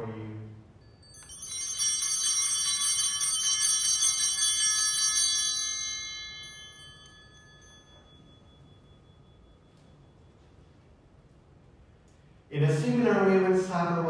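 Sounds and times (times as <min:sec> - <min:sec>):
small bells shaken and ringing: 0:00.8 - 0:10.3.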